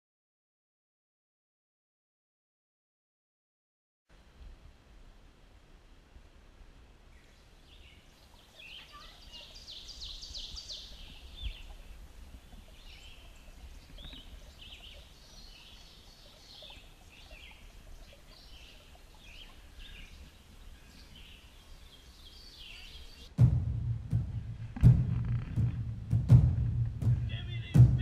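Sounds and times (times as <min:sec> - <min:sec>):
songbirds chirping: 0:04.2 - 0:28.0
low rumble: 0:23.3 - 0:28.0
sharp knock: 0:23.4 - 0:28.0.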